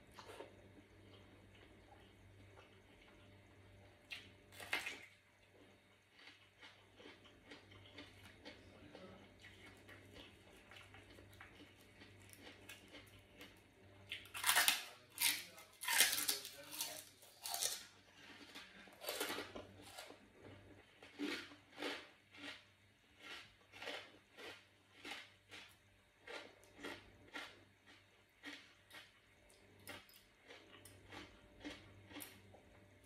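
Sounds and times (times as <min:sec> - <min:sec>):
chewing: 0:00.0 - 0:32.8
loud food crunches: 0:06.1 - 0:08.6, 0:14.1 - 0:29.1, 0:29.8 - 0:32.4.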